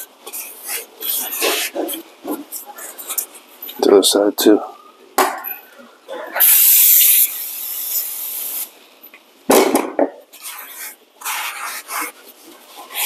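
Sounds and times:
aerosol spray hissing: 0:06.4 - 0:08.7.

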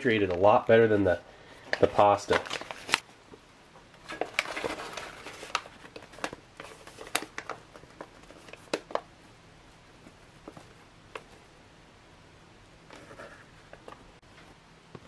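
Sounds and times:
meal pouch crinkling: 0:01.8 - 0:03.0.

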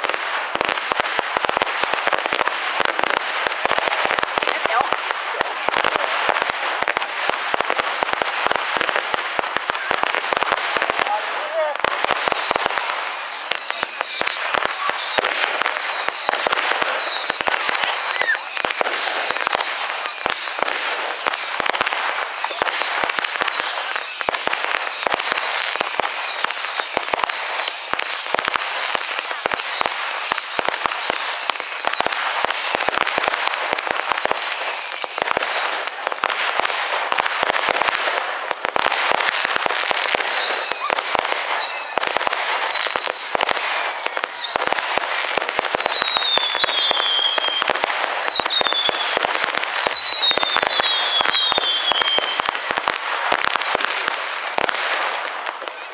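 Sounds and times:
fireworks crackling and banging: 0:00.0 - 0:55.9
high falling firework whistles: 0:11.9 - 0:38.0, 0:38.6 - 0:55.9.

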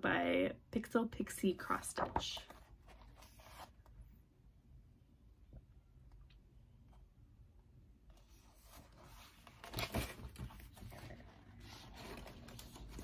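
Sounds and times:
paper rustling: 0:02.0 - 0:03.8, 0:08.2 - 0:13.0.

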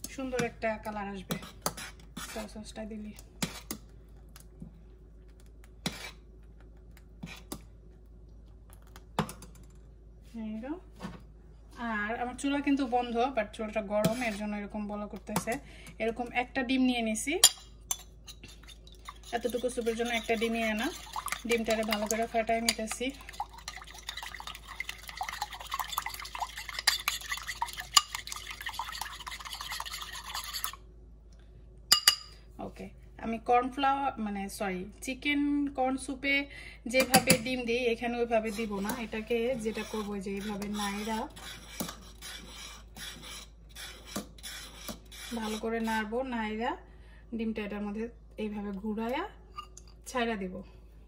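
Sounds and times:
egg beaten in a bowl: 0:17.5 - 0:30.8, 0:38.4 - 0:46.1.

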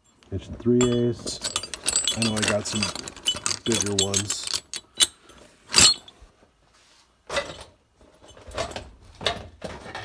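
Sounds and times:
hand rummaging in tool pouch: 0:00.0 - 0:06.2
metal tools clinking and rattling: 0:00.0 - 0:06.2.

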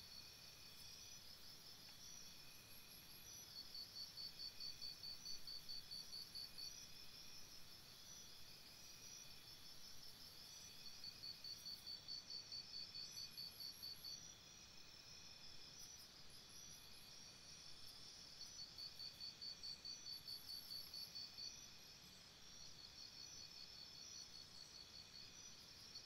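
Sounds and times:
crickets chirping: 0:00.0 - 0:26.0.

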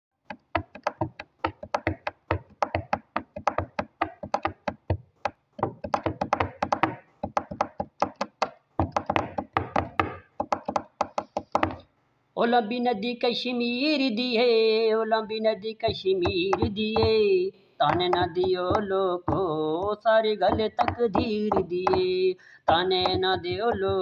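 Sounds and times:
rapid uneven knocks: 0:00.3 - 0:11.8, 0:15.9 - 0:17.2, 0:17.9 - 0:22.1, 0:22.7 - 0:24.0.

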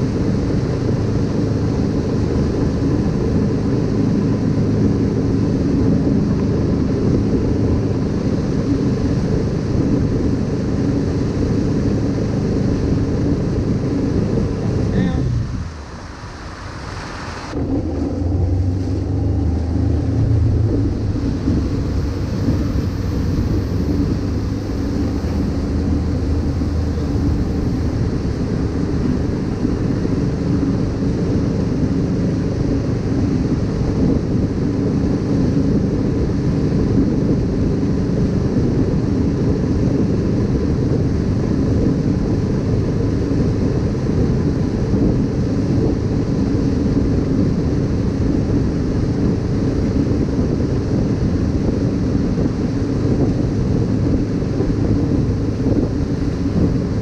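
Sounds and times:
boat engine running: 0:00.0 - 0:57.0
wind buffeting microphone: 0:00.0 - 0:57.0
water rushing: 0:12.1 - 0:32.2.

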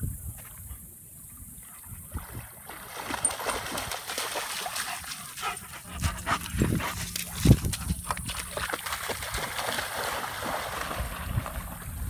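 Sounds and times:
water splashing: 0:02.0 - 0:06.1, 0:06.9 - 0:12.0.

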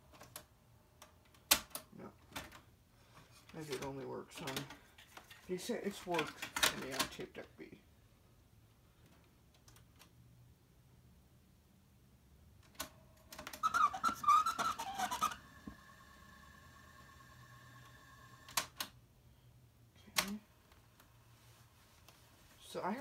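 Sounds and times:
garbled chirping warble of rewinding tape: 0:13.5 - 0:18.4
steady whine from tape deck: 0:14.2 - 0:18.8.

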